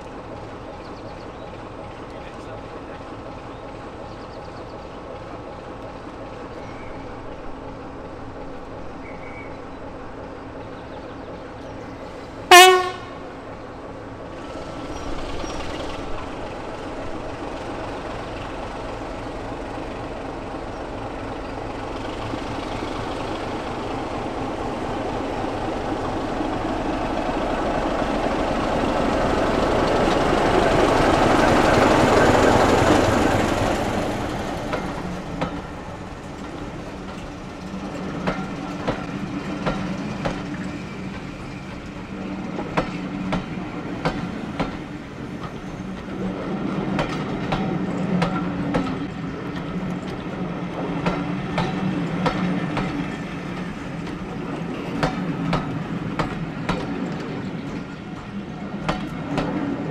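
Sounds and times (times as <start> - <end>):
diesel locomotive passing: 0.0 - 59.9
train wheels clacking over rail joints: 14.2 - 59.9.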